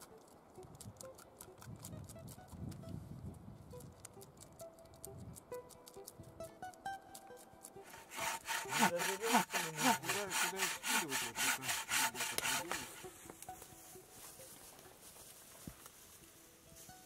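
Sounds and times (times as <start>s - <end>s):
bow saw cutting a log: 7.2s - 13.2s.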